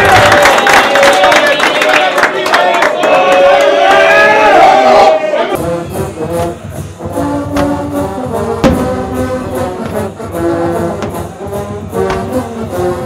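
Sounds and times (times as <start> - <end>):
marching band brass playing: 5.6 - 13.0
sharp drum hits: 7.6 - 12.7.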